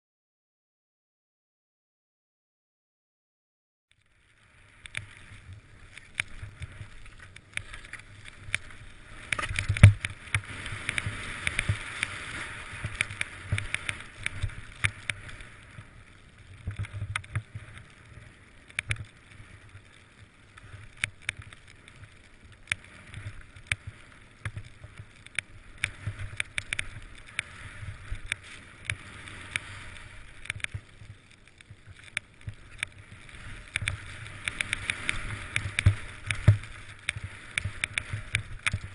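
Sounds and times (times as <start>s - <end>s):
skis swishing through powder snow: 4.5s - 20.8s, 21.6s - 38.9s
sharp clicks and knocks: 6.0s - 12.1s, 33.6s - 38.9s.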